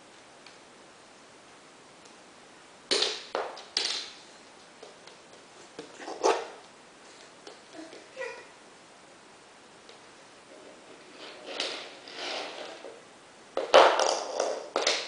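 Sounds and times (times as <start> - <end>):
plastic toy car clattering on wood floor: 2.9 - 4.2, 10.9 - 13.0, 13.6 - 15.0.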